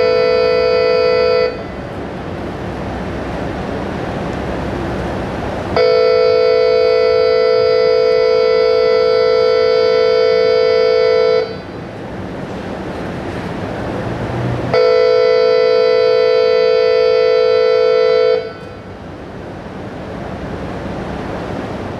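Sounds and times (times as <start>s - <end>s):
loud steady horn-like tone: 0.0s - 1.9s, 5.7s - 11.8s, 14.7s - 19.0s
rushing noise: 0.0s - 6.8s, 11.5s - 14.8s, 18.4s - 21.9s.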